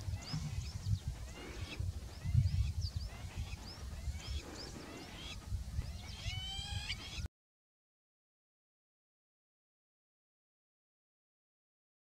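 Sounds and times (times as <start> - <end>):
bird chirps: 0.0 - 7.3.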